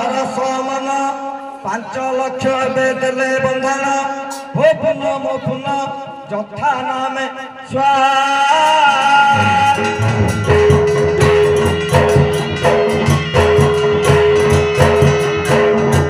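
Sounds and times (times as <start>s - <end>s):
person singing: 7.7s - 14.0s
barrel drum beat: 9.3s - 16.0s
held high note: 9.3s - 16.0s.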